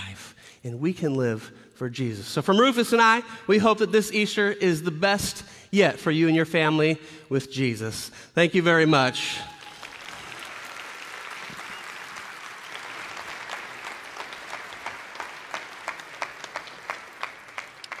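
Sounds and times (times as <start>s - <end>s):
audience applauding: 9.3s - 18.0s.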